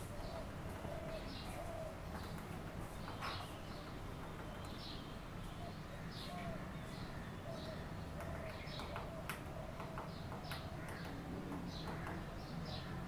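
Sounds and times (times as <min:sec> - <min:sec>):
woodpecker tapping on wood: 0:08.1 - 0:12.6.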